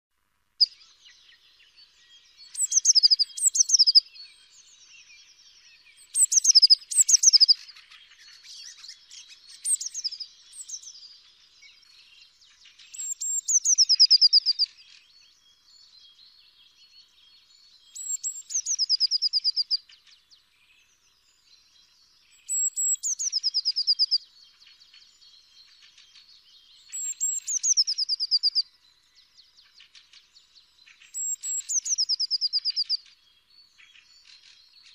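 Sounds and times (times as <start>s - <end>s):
faint bird chips: 6.0s - 11.0s, 25.7s - 28.6s.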